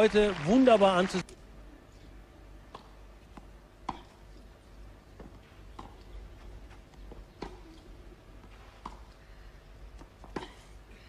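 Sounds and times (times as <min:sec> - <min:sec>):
faint steady hum: 0:00.0 - 0:11.0
tennis ball hit by rackets: 0:02.7 - 0:04.2, 0:07.4 - 0:07.6.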